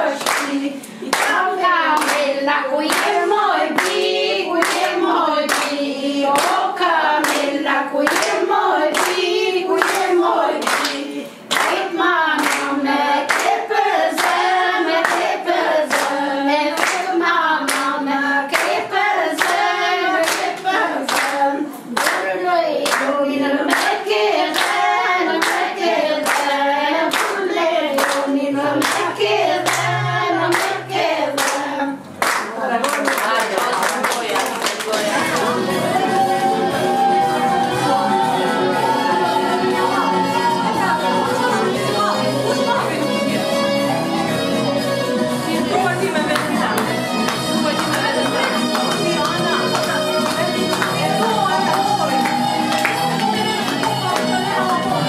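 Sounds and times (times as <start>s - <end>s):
women singing together: 0.0s - 55.0s
hand clapping: 0.2s - 12.7s, 13.3s - 13.6s, 15.0s - 16.2s, 16.8s - 17.9s, 19.4s - 23.1s, 23.7s - 24.8s, 25.4s - 29.9s, 30.5s - 35.6s, 46.3s - 54.8s.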